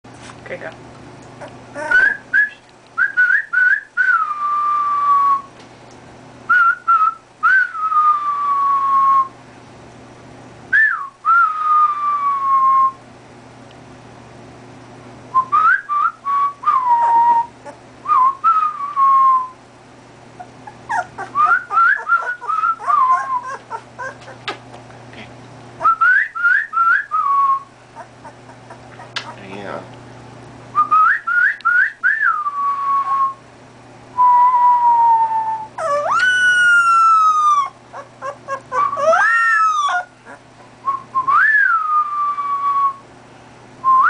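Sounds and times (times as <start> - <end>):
puppy howling: 1.4 - 2.2, 16.7 - 17.8, 20.4 - 24.5, 28.0 - 29.4, 35.1 - 40.4
person whistling: 1.8 - 5.5, 10.8 - 13.0, 21.4 - 23.6, 25.8 - 27.7, 30.8 - 33.4, 34.2 - 36.3, 40.9 - 43.0.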